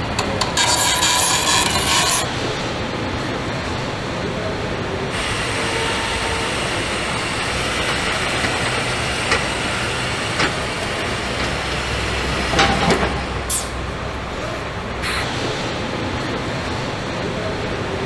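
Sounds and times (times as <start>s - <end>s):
machinery hum and rush: 0.0s - 18.0s
short high hiss: 15.0s - 15.3s.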